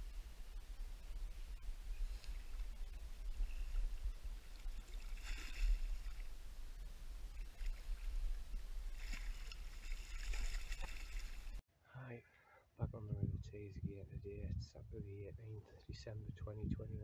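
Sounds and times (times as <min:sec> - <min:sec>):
steady low rumble: 0:00.0 - 0:04.9, 0:12.8 - 0:17.0.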